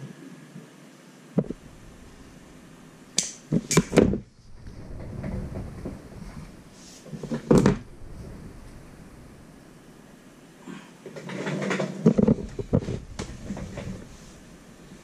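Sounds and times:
soft handling noise: 11.0 - 15.0.

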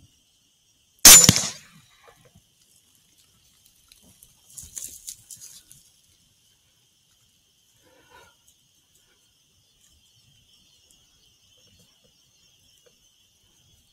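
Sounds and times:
air rifle firing: 1.1 - 1.6.

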